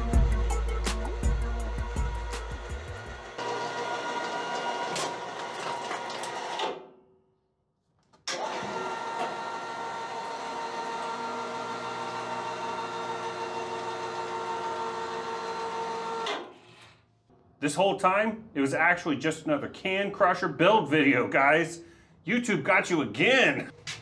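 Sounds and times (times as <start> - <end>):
electric motor whining hum: 0.5 - 5.4, 8.4 - 16.3.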